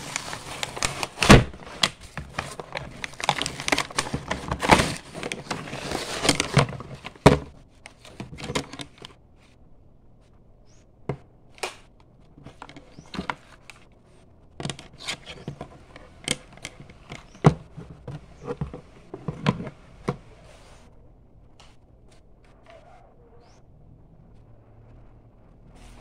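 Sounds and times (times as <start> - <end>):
hands handling toy rifle: 0.0 - 9.2.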